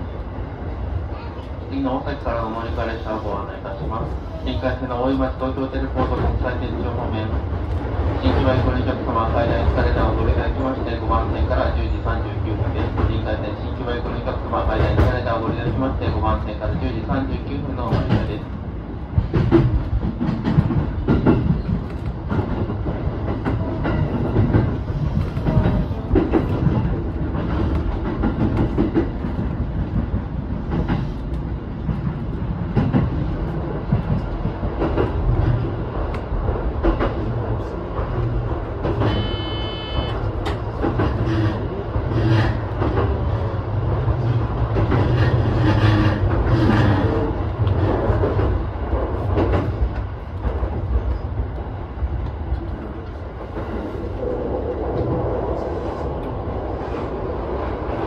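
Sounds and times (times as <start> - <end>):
rail joint clicking: 12.6 - 58.0
electric train running: 38.9 - 41.6.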